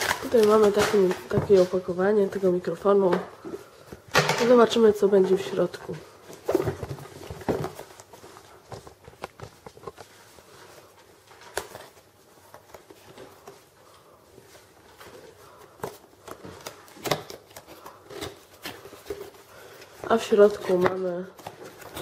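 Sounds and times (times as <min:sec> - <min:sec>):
cardboard box rustling: 0:04.5 - 0:10.6.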